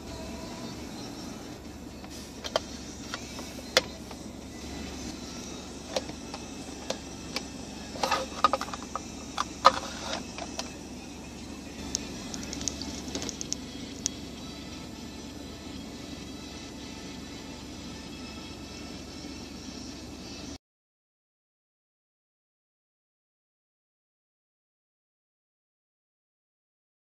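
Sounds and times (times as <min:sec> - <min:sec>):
steady low hum: 0:00.0 - 0:20.6.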